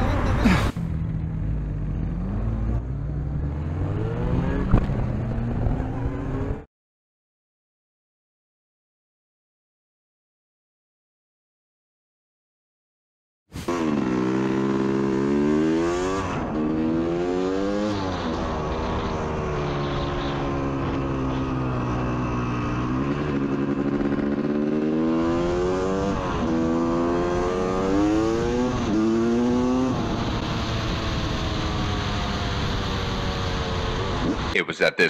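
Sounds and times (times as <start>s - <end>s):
motorcycle engine accelerating: 0.0s - 6.7s, 13.6s - 34.5s.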